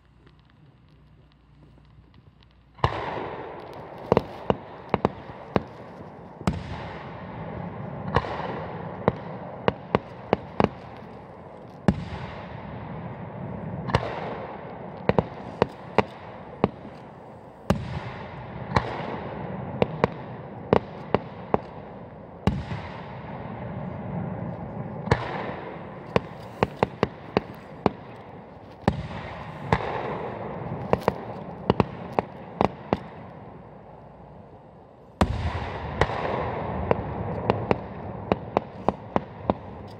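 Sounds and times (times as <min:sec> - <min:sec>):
rumbling wash of fireworks: 0:00.0 - 0:39.9
firework shells bursting: 0:13.9 - 0:33.4.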